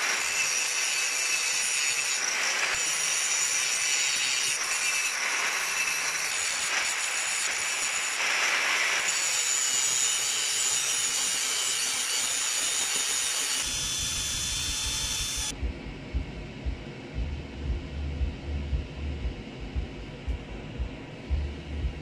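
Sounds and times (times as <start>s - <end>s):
angle grinder cutting steel: 0.0s - 15.5s
low uneven rumble: 15.5s - 22.0s.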